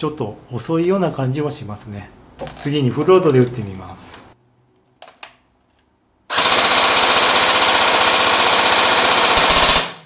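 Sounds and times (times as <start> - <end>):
airsoft gun full-auto burst: 6.3 - 10.0.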